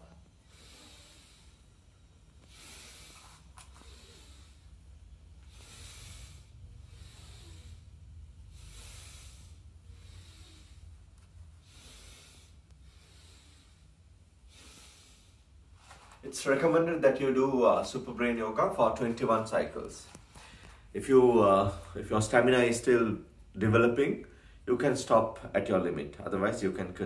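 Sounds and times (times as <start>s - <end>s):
person breathing in and out: 0.0s - 16.2s, 20.0s - 20.9s, 24.3s - 24.6s.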